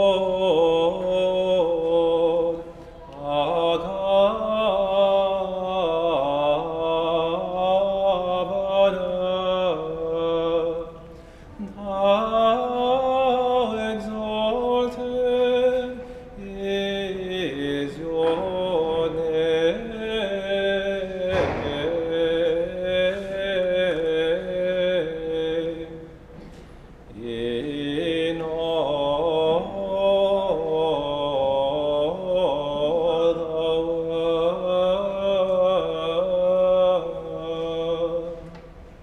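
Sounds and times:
slow church music with held chords: 0.0 - 39.0.

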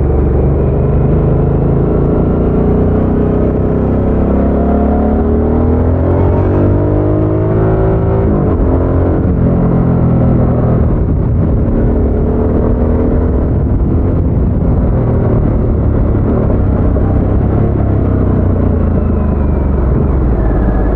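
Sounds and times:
motorcycle engine running: 10.8 - 20.9.

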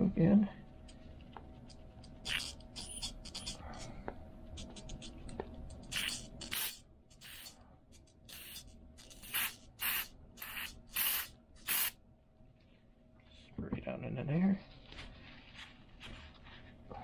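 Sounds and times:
aerosol spray hissing: 5.9 - 7.6, 8.3 - 12.0.

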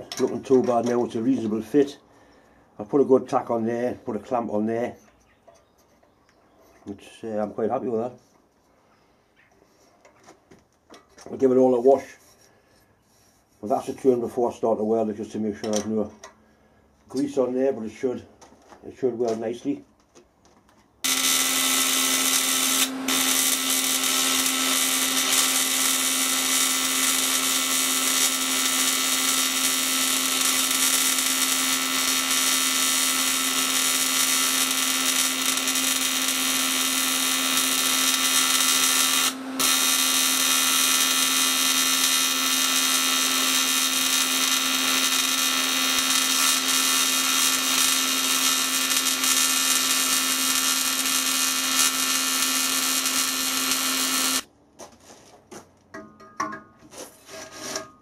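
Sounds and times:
welding arc buzzing hiss: 21.0 - 54.5.

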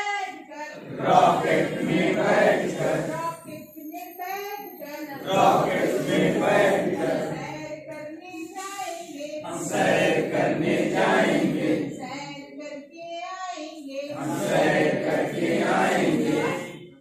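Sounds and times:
group singing together: 0.7 - 3.4, 5.1 - 7.6, 9.4 - 12.2, 14.1 - 17.0.

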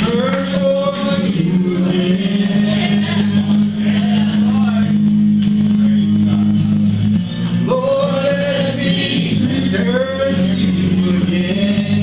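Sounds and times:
voices singing gospel song: 0.0 - 4.8, 7.6 - 12.0
steady bass accompaniment: 0.0 - 12.0.

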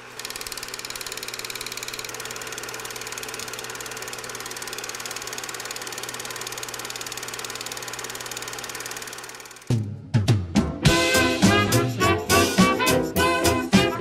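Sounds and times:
film projector clatter: 0.0 - 9.8.

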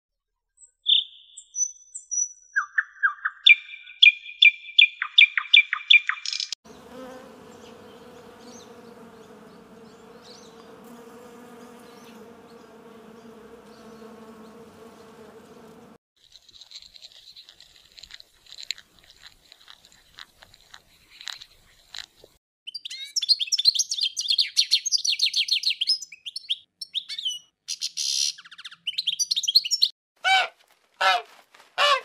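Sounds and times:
bird chirping: 0.6 - 15.7, 22.7 - 29.9
honeybees buzzing: 6.6 - 16.0.

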